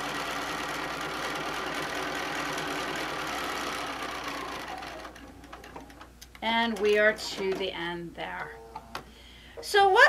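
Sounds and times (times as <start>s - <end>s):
sewing machine running: 0.0s - 6.1s.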